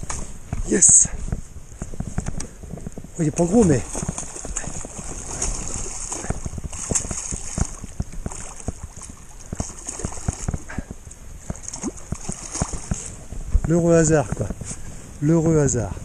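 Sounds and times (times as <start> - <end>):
water splashing: 3.1 - 14.4.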